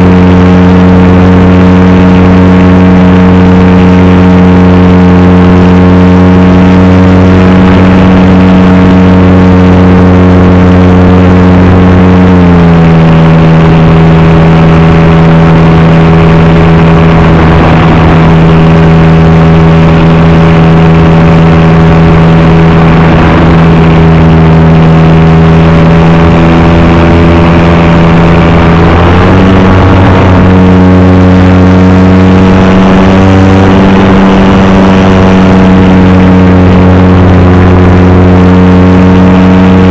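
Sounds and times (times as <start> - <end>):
model plane motor and propeller: 0.0 - 39.9.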